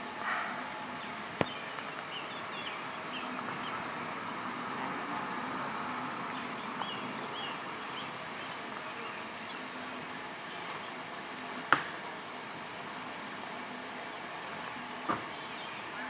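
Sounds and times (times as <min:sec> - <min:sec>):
street ambience: 0:00.0 - 0:16.0.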